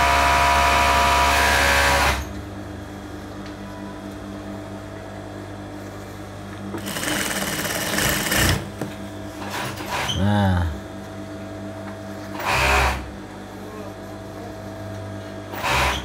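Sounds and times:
steady machine hum: 0:00.0 - 0:16.0
sewing machine stitching: 0:06.8 - 0:08.7, 0:15.6 - 0:16.0.

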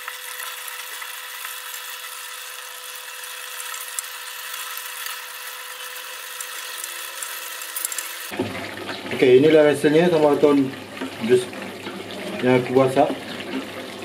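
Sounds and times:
sauce sizzling in a pot: 0:00.0 - 0:14.0
wooden spatula stirring: 0:10.7 - 0:14.0.

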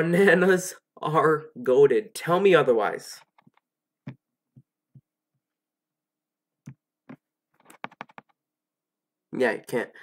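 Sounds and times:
mouse and keyboard clicks: 0:06.6 - 0:08.4.

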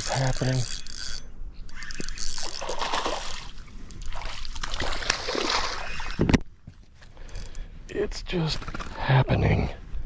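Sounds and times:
water splashing and sloshing: 0:01.9 - 0:06.9.

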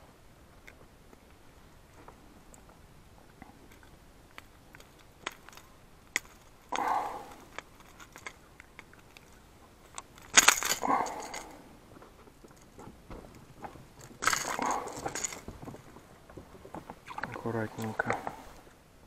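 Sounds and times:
fish thrashing rattling and scuffing: 0:03.8 - 0:18.6.

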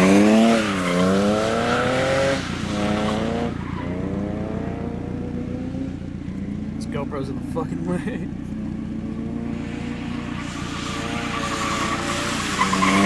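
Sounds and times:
car engine revving: 0:00.0 - 0:13.0
tyres hissing through water: 0:09.6 - 0:13.0.

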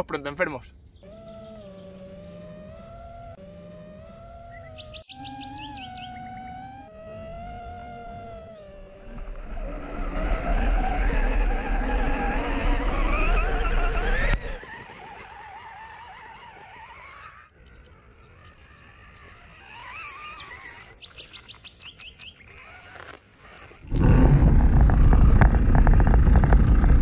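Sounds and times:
small electric motors whining: 0:01.0 - 0:27.0
wind rumbling on microphone: 0:23.8 - 0:27.0.

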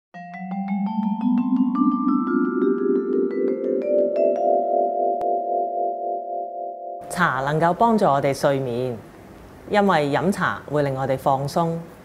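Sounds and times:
mallet percussion jingle: 0:00.2 - 0:06.4.

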